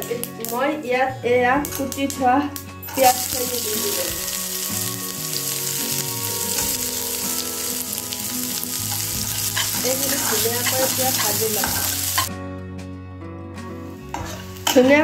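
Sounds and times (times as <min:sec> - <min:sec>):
onion sizzling in hot oil: 0:02.9 - 0:12.3.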